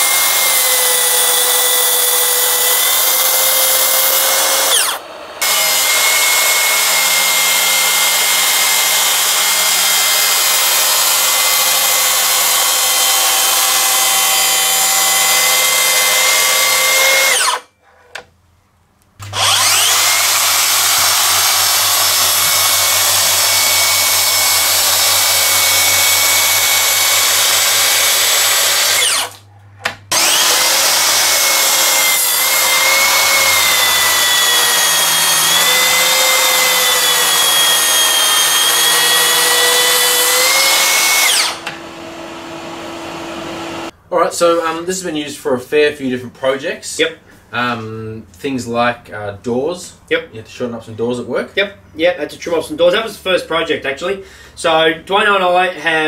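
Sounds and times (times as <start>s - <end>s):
track saw cutting: 0.0s - 17.7s, 19.2s - 29.4s, 30.1s - 44.0s.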